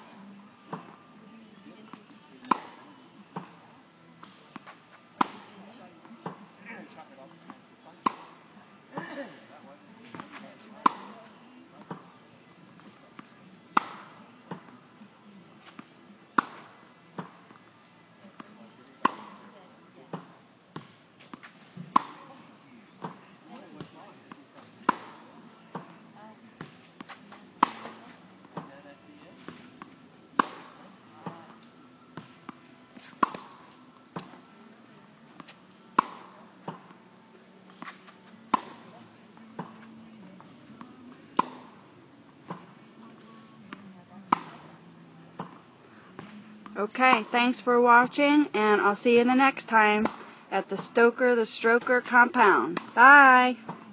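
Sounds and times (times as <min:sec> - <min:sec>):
tennis ball bouncing: 0:02.4 - 0:03.5, 0:04.2 - 0:06.4, 0:08.0 - 0:08.4, 0:10.1 - 0:12.1, 0:12.8 - 0:14.7, 0:15.6 - 0:17.6, 0:18.3 - 0:22.4, 0:23.0 - 0:25.9, 0:26.6 - 0:28.7, 0:29.4 - 0:31.6, 0:32.2 - 0:34.4, 0:35.4 - 0:36.9, 0:37.7 - 0:39.9, 0:40.7 - 0:44.8, 0:45.4 - 0:47.3, 0:49.4 - 0:51.0, 0:51.8 - 0:53.9
tennis racket hitting ball: 0:02.5 - 0:02.8, 0:10.1 - 0:11.2, 0:13.8 - 0:14.6, 0:19.0 - 0:19.4, 0:21.8 - 0:22.3, 0:24.8 - 0:25.8, 0:27.6 - 0:28.0, 0:30.4 - 0:31.4, 0:33.0 - 0:34.4, 0:35.4 - 0:36.9, 0:37.8 - 0:39.0, 0:41.4 - 0:41.8, 0:44.3 - 0:44.8, 0:50.0 - 0:50.9, 0:51.8 - 0:53.8.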